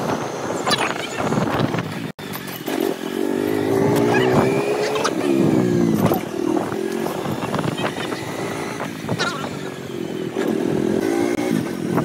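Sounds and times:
road and wind noise: 0:00.0 - 0:12.0
motorcycle engine running: 0:01.6 - 0:12.0.

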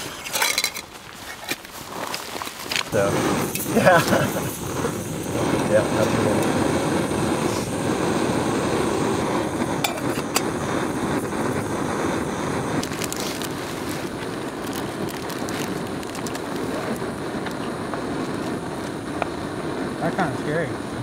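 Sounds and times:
sharp clicks and crinkles: 0:00.0 - 0:03.0, 0:12.8 - 0:19.3
gas stove roaring: 0:00.0 - 0:21.0.

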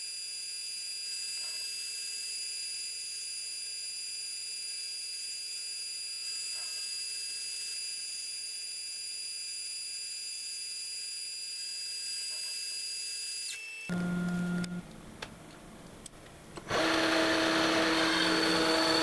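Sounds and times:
metal lathe whining: 0:16.7 - 0:19.0.

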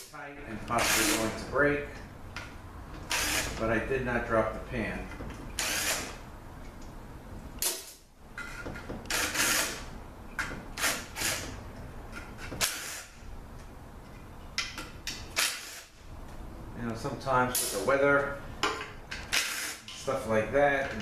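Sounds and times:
cordless drill spinning bolts: 0:03.0 - 0:03.6, 0:05.6 - 0:06.2, 0:09.1 - 0:09.8.

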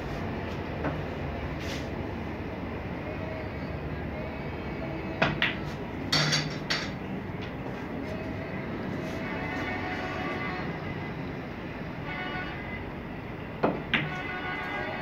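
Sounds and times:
cue striking ball: 0:05.2 - 0:07.0
snooker balls clicking: 0:05.2 - 0:07.6.

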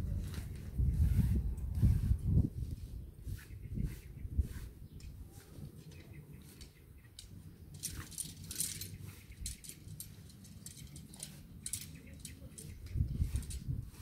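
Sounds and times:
tent poles clinking and rattling: 0:05.0 - 0:13.8.

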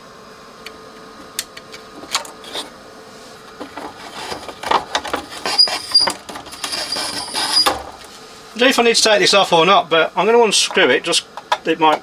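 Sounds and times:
rubbing and scraping: 0:03.8 - 0:07.7
short high squeaks: 0:05.4 - 0:07.8.

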